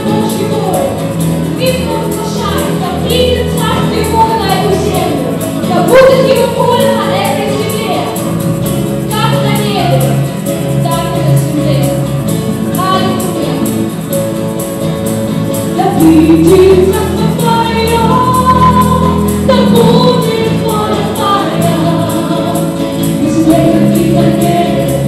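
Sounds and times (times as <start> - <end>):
acoustic guitar: 0.0 - 25.0
bass guitar: 0.0 - 25.0
keyboard: 0.0 - 25.0
group of voices singing: 15.9 - 25.0.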